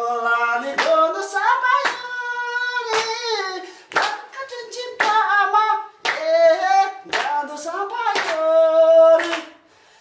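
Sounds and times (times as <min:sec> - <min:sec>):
hand clap: 0:00.6 - 0:09.6.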